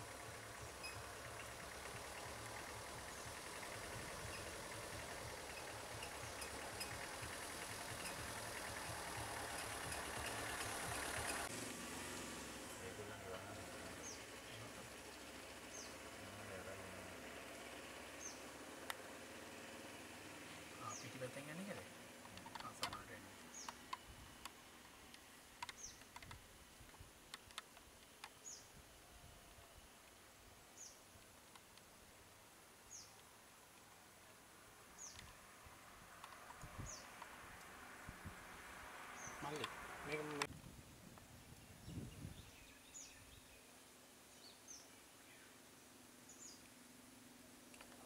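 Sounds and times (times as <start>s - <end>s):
insect hum: 0.0s - 48.0s
sharp clicks: 22.2s - 28.4s, 36.2s - 37.8s, 39.5s - 40.5s.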